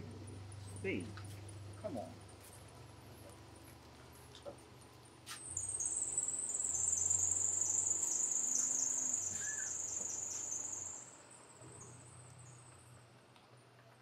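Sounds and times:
minivan engine driving away: 0.0s - 14.0s
crickets chirping: 4.7s - 13.0s.

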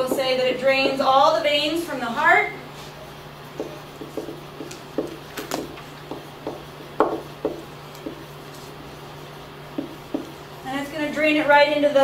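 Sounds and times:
marker writing on whiteboard: 3.5s - 10.6s.

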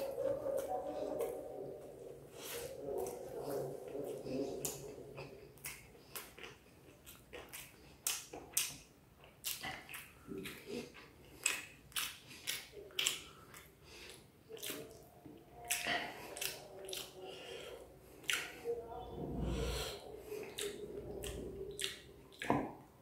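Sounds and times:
wet chewing clicks and smacks: 3.0s - 17.5s, 18.2s - 18.6s, 20.4s - 23.0s.

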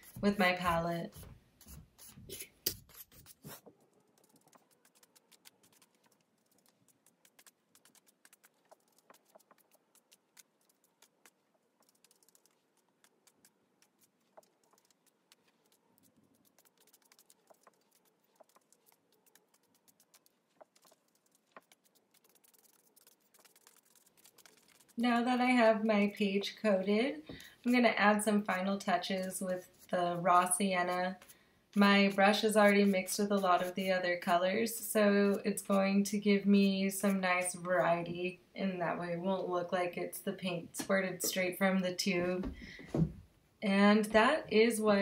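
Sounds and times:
brush on paper: 0.0s - 25.6s, 27.7s - 37.6s
brush dabbing paint: 0.0s - 38.2s.

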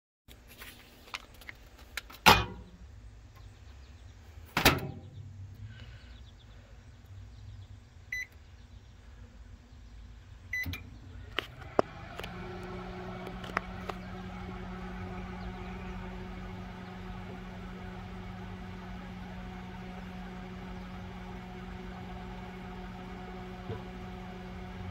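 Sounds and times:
microwave oven humming: 9.8s - 24.9s.

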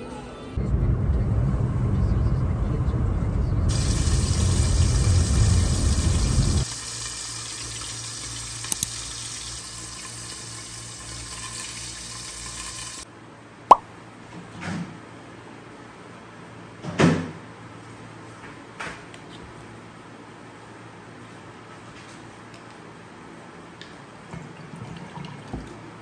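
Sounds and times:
car road rumble: 0.6s - 6.6s
low electric hum: 0.6s - 6.6s
fish sizzling in a pan: 3.7s - 13.0s.

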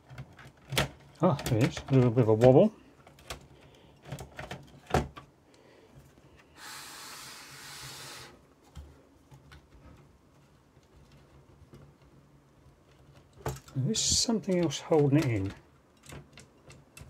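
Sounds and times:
plastic and metal parts clicking: 0.0s - 5.3s, 12.8s - 17.0s.

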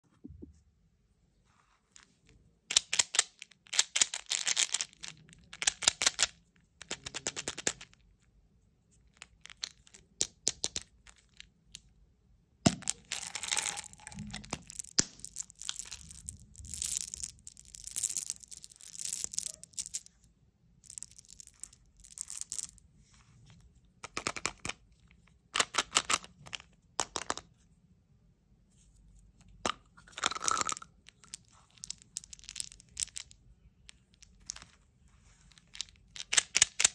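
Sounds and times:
candies rattling: 2.7s - 8.0s, 12.7s - 20.2s, 30.0s - 36.9s
plastic caps clicking: 29.6s - 34.8s, 35.6s - 36.9s.

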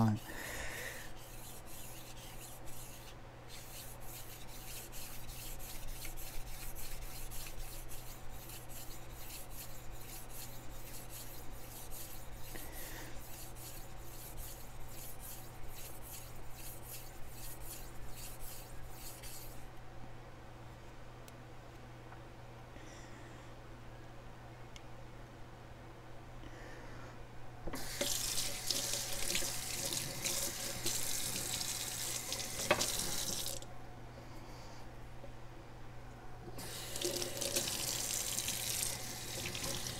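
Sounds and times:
knife blade rasping on whetstone: 1.1s - 19.6s.

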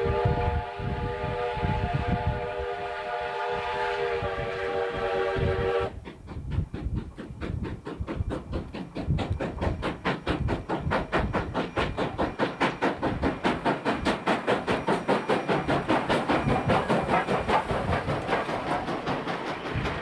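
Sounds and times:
train horn chord: 0.0s - 5.9s
train wheels clickety-clack: 4.0s - 20.0s.

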